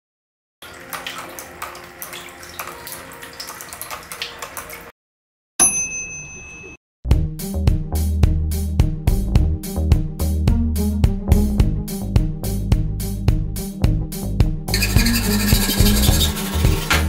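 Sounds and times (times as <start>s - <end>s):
fountain water trickling: 0.6s - 4.9s
bright ding: 5.6s - 6.8s
music: 7.1s - 17.0s.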